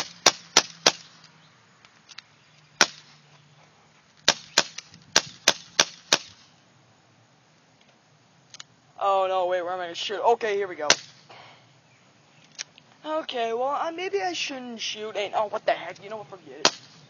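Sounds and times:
airsoft revolver dry-firing pops: 0.0s - 1.1s, 4.2s - 6.4s, 10.9s - 11.2s.

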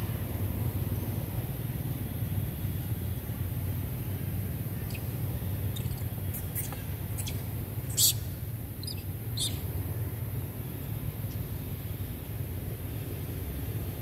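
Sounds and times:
monkeys squeaking: 4.9s - 9.7s.

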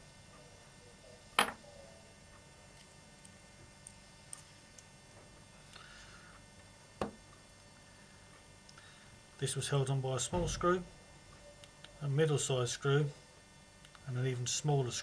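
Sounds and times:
screwdriver set down on table: 1.4s - 1.6s.

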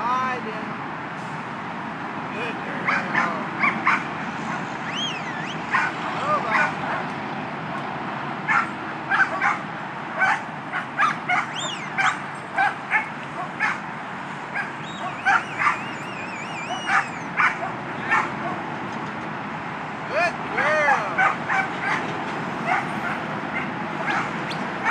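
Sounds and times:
freeway traffic hum: 0.0s - 24.9s
dog barking: 2.8s - 4.6s, 5.7s - 7.1s, 8.5s - 18.6s, 21.1s - 24.9s.

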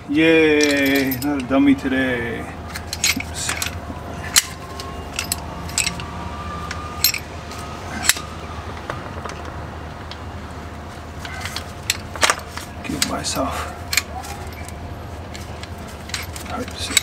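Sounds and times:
steady low hum: 0.0s - 17.0s
metal tool clicks and clinks: 0.6s - 1.5s, 2.7s - 6.1s, 6.7s - 7.3s, 13.9s - 17.0s.

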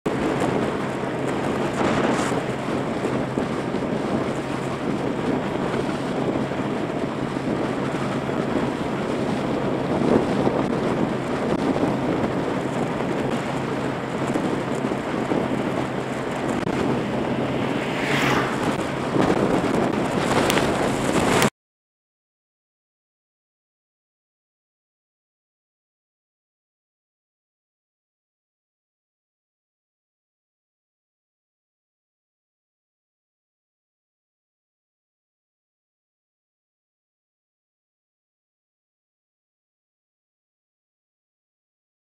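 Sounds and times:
motorbike engine hum: 0.1s - 21.5s
wind rushing over microphone: 0.1s - 21.5s.

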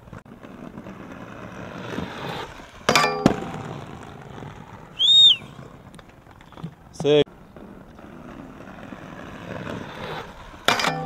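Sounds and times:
skateboard wheels rolling on paving: 0.0s - 11.0s
skateboard clanging on metal rail: 2.8s - 3.7s, 10.6s - 11.0s.

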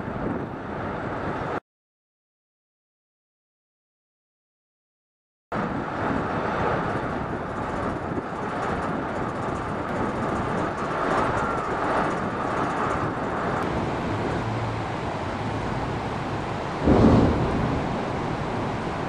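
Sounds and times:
wind buffeting microphone: 0.0s - 1.6s, 5.6s - 19.0s
low rumble: 5.6s - 19.0s.

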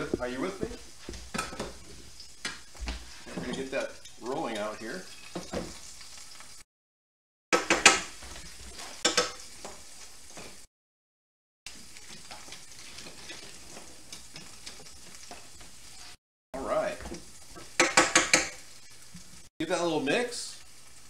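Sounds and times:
butter sizzling in a frying pan: 0.0s - 6.6s, 7.6s - 10.7s, 11.7s - 21.0s
utensil clattering on cookware: 17.6s - 18.6s.

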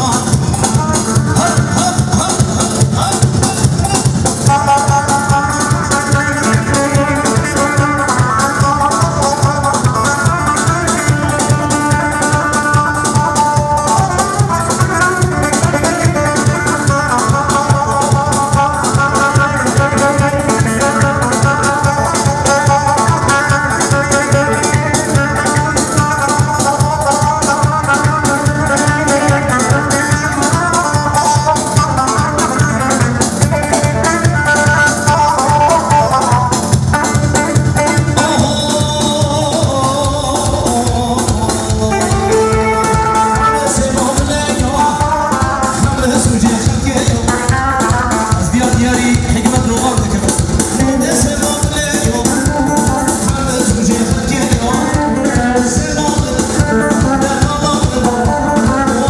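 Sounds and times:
steady drum beat: 0.0s - 59.0s
plucked string melody: 3.8s - 50.2s.

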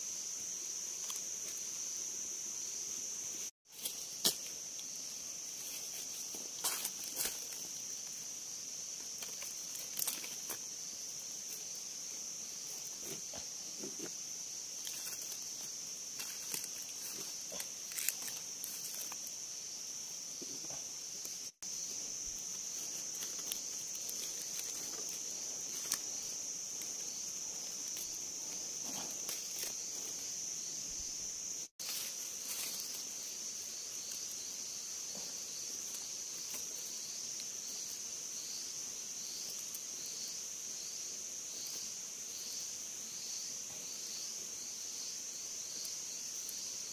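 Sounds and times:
insects droning: 0.0s - 46.9s
dry leaves rustling: 3.6s - 11.8s, 14.8s - 19.3s, 21.6s - 30.3s, 31.8s - 34.4s.

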